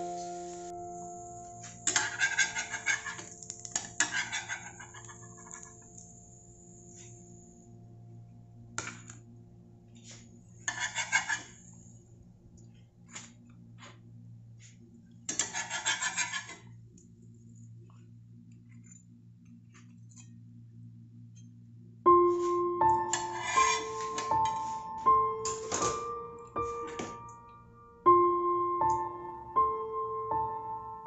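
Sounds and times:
steady low hum: 0.0s - 25.4s
metal spatula rattling on plate: 1.8s - 5.6s, 15.3s - 16.6s.

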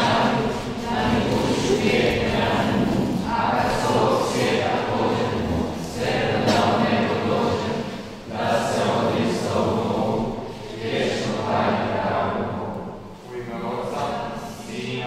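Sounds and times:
choir singing: 0.0s - 15.0s.

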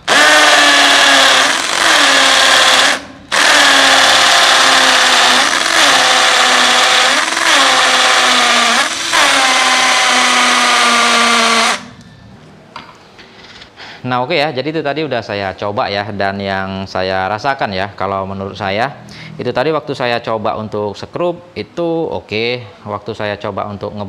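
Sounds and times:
hammer drill boring into masonry: 0.0s - 12.0s.

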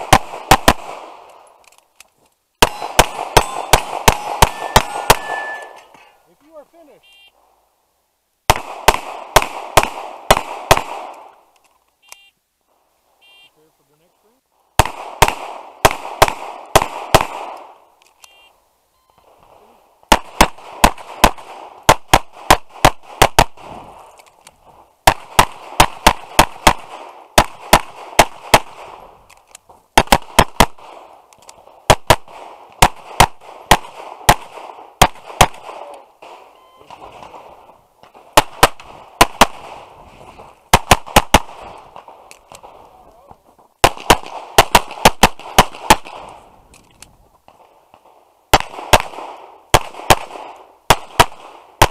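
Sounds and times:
pistol shots: 0.0s - 1.4s, 2.6s - 5.8s, 8.5s - 11.4s, 14.7s - 17.8s, 20.1s - 24.1s, 25.0s - 29.3s, 30.0s - 40.0s, 40.7s - 42.8s, 43.8s - 46.4s, 47.5s - 51.9s.

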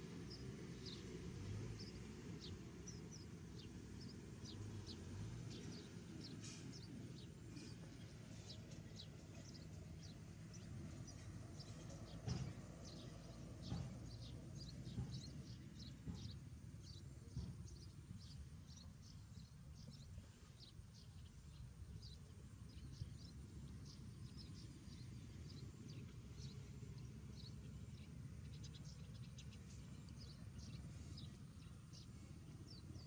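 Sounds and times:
soft knocks: 11.9s - 15.4s.

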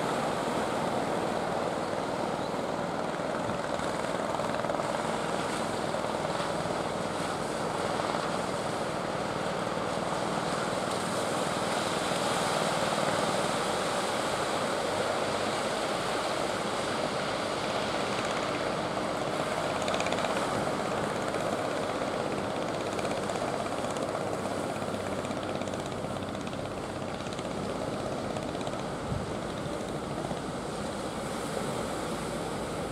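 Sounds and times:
distant boat engine drone: 0.0s - 32.9s.

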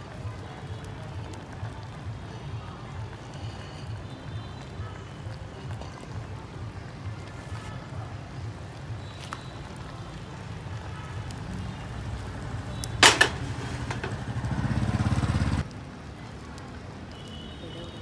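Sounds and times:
vehicle engine rumble: 6.0s - 16.7s
sharp clatter: 13.0s - 14.3s.

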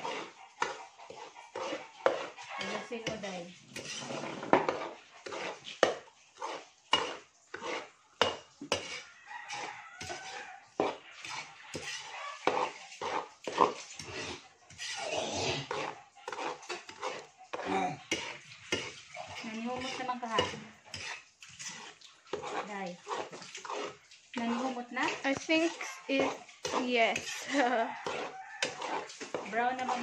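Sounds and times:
metal spatula scraping a pan: 0.0s - 30.0s.

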